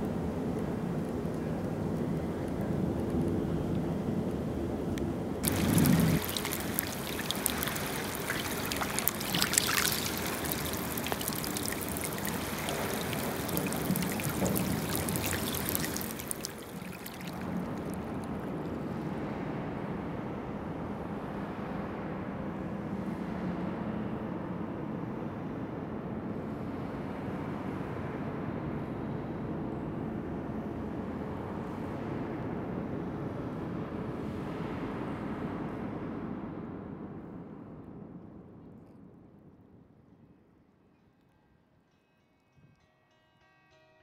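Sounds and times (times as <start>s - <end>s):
water lapping over pebbles: 5.4s - 18.5s.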